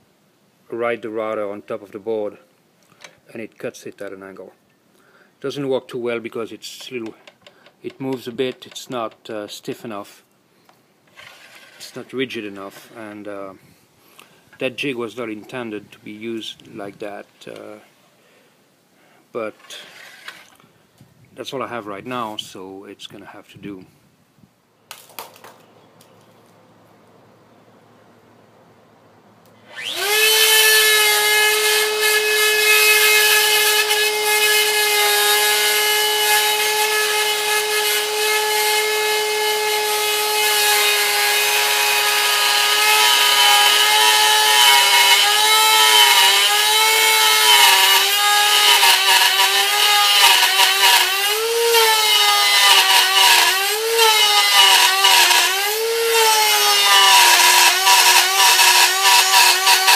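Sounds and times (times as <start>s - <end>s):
router bit cutting wood: 29.6s - 59.9s
wood router whining: 29.6s - 59.9s.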